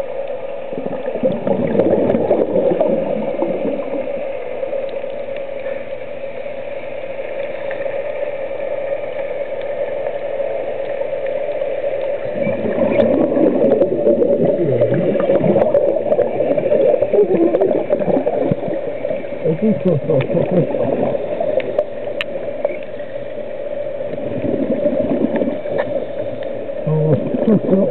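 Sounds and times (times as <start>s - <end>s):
scuba exhaust bubbles gurgling: 0.0s - 27.9s
underwater hum and hiss: 0.0s - 27.9s.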